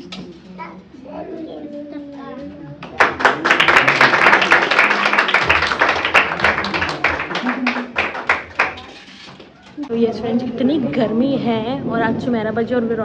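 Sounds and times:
crowd applauding: 0:02.8 - 0:09.3.

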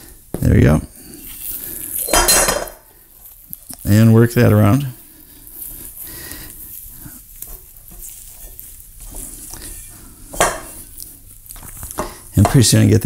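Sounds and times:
hands squishing sticky dough: 0:03.0 - 0:13.0.

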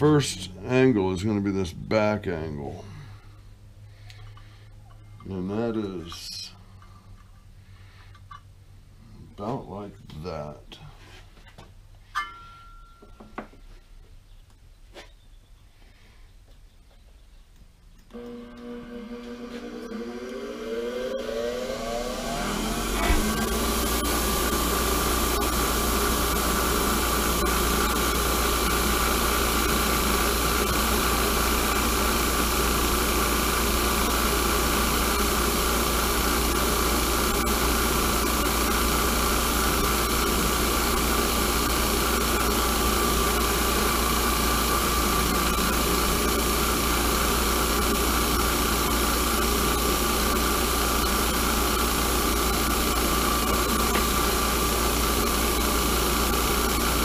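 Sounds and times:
bench grinder grinding steel: 0:18.1 - 0:57.0.

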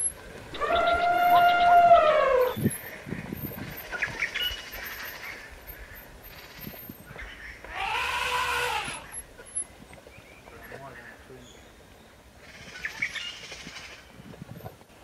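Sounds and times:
elephant trumpeting: 0:00.6 - 0:02.7, 0:07.7 - 0:09.1.

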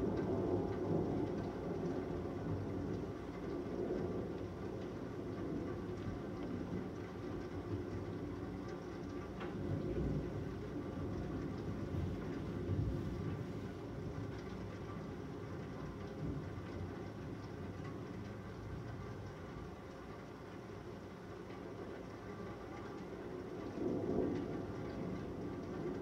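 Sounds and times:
distant thunder rumbling: 0:00.0 - 0:19.6, 0:21.6 - 0:26.0.

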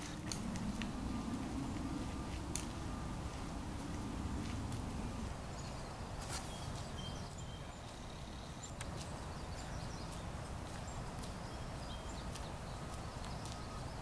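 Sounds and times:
steady low rumble: 0:00.0 - 0:14.0
bird chirps: 0:05.5 - 0:14.0.

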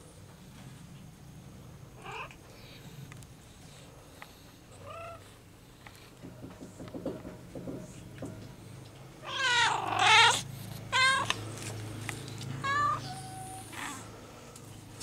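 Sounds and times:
cats meowing: 0:02.0 - 0:02.4, 0:09.2 - 0:11.5, 0:12.6 - 0:14.1.

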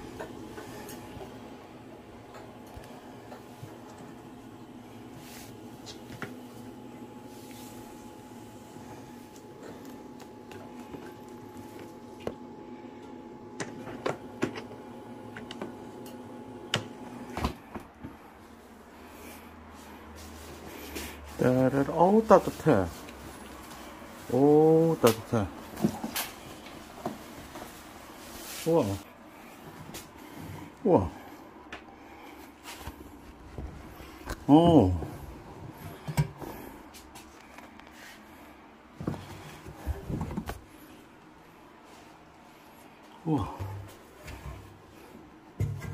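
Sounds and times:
steady hum: 0:00.0 - 0:45.9
clicks and knocks of washing machine door: 0:45.6 - 0:45.9.

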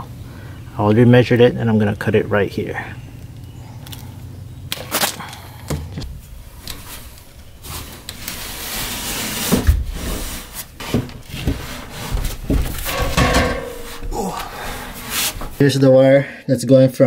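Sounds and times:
scuffing and rubbing on wood: 0:06.8 - 0:15.6.

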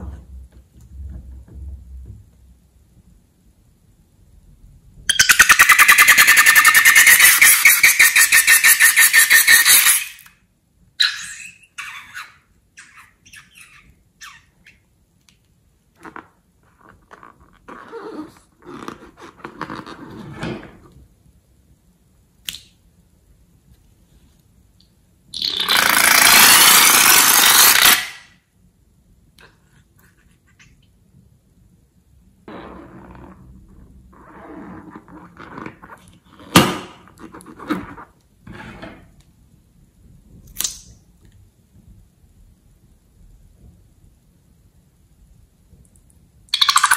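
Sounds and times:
squeaky rubbing of rubber balloon: 0:05.1 - 0:10.3, 0:16.8 - 0:20.8, 0:25.4 - 0:28.2, 0:32.4 - 0:36.5
rubber balloon rubbing in hand: 0:16.7 - 0:20.4, 0:32.5 - 0:36.5.

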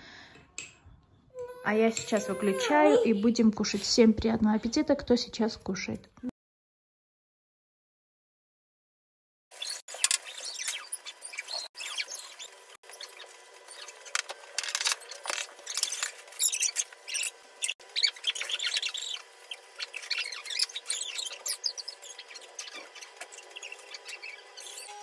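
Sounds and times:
rubber gloves squeaking on tiles: 0:01.3 - 0:03.3, 0:09.6 - 0:25.0.

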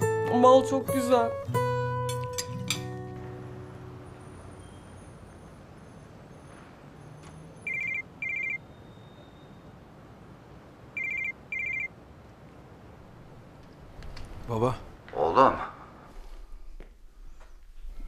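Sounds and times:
phone ringtone trilling: 0:07.6 - 0:09.3, 0:11.0 - 0:11.9.

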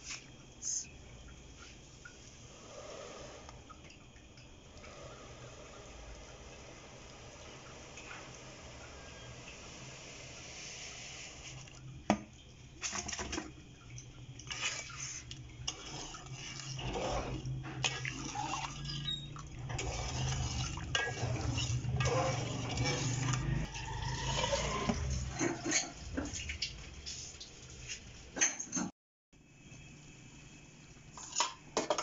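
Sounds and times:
metal spoon scraping a pot: 0:14.5 - 0:26.7.

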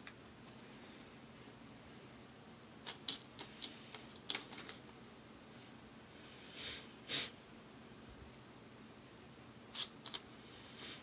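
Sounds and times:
plastic block parts clicking: 0:02.9 - 0:04.8.

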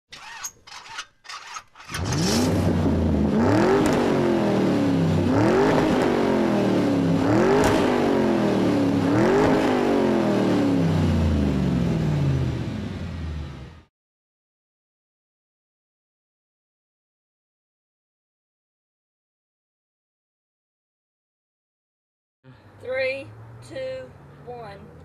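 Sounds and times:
car engine accelerating: 0:01.9 - 0:13.9.

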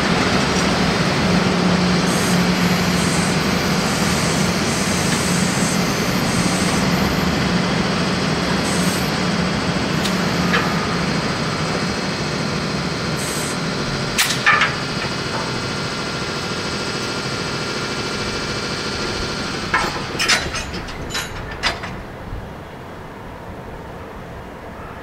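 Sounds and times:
electric locomotive running: 0:00.0 - 0:25.0
metallic clanks: 0:14.2 - 0:15.7, 0:19.7 - 0:22.1.

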